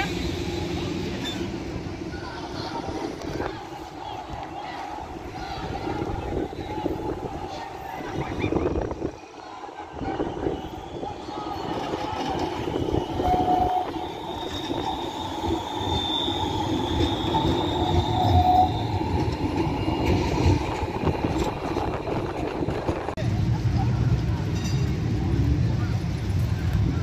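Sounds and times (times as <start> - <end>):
high wheel squeal: 0.0 - 4.6, 9.8 - 21.5
tram rumbling past: 0.0 - 27.0.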